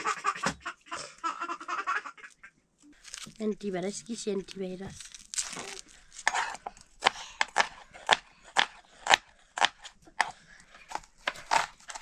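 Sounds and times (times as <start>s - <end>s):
knife chopping food: 6.2s - 12.0s.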